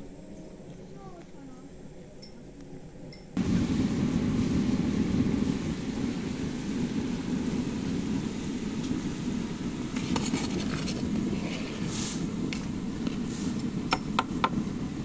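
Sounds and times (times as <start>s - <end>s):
jam boiling rumble: 0.0s - 15.0s.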